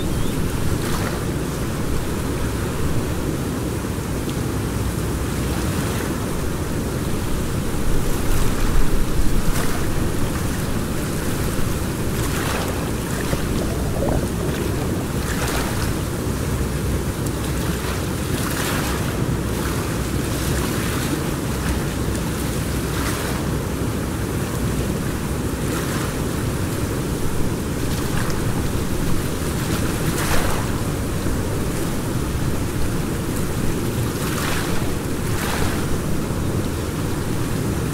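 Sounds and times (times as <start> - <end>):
wind on microphone: 0.0 - 3.6, 5.9 - 19.0
river water rushing: 0.0 - 37.9.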